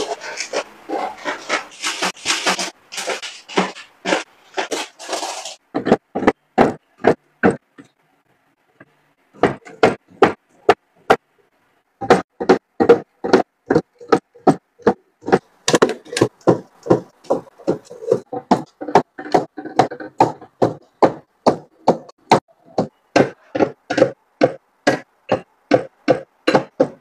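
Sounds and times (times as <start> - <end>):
snack bag crinkling: 1.2 - 5.6
plastic bottles knocking on metal shelves: 1.2 - 7.9, 12.0 - 27.0.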